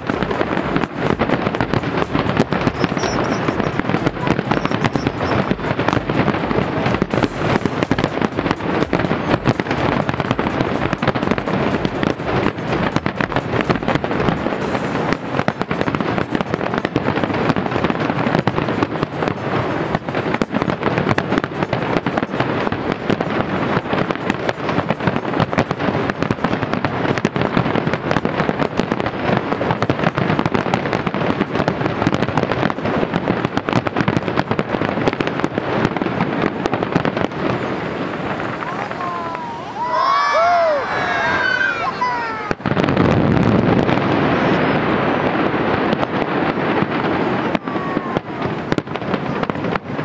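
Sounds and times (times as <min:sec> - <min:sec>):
crackling of bursting shells: 0:00.0 - 0:28.9
fireworks bangs: 0:00.0 - 0:50.0.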